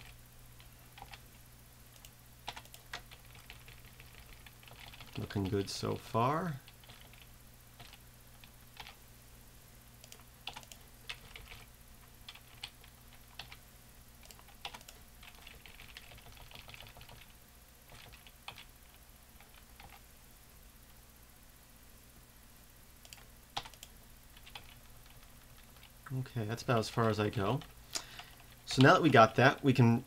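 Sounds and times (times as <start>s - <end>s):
keyboard keystrokes and mouse clicks: 0.0s - 1.2s, 2.0s - 5.6s, 6.6s - 9.0s, 10.0s - 11.7s, 12.3s - 13.6s, 14.2s - 17.3s, 17.9s - 18.7s, 19.4s - 20.0s, 23.0s - 25.9s, 26.9s - 29.2s.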